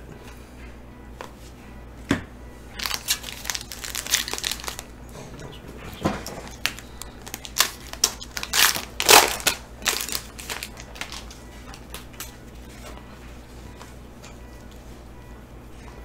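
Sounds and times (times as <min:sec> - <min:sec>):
foil pack tearing and crinkling: 0:02.8 - 0:04.9, 0:06.5 - 0:11.4.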